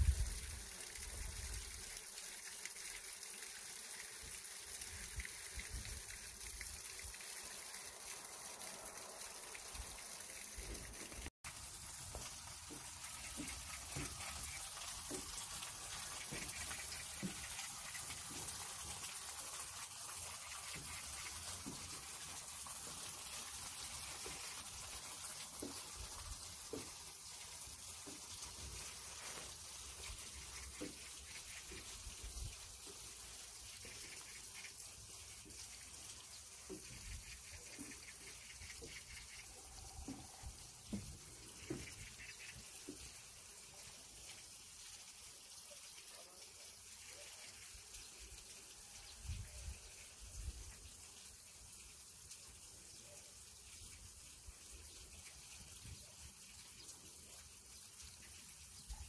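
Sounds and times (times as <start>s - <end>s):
stream water running and splashing: 0.0s - 59.0s.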